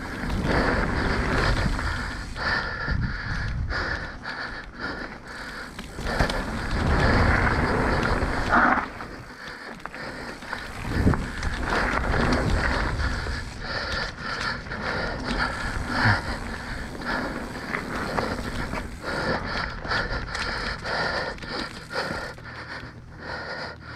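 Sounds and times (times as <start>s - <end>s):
bike rattling: 0.0s - 23.3s
bike tyres rolling over dirt: 0.0s - 23.5s
bike thumping on bumps: 5.6s - 20.6s.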